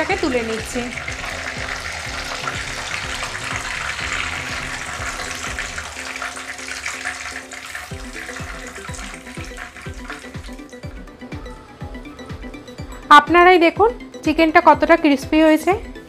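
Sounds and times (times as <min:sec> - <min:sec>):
chicken deep-frying in oil: 0:00.0 - 0:10.8.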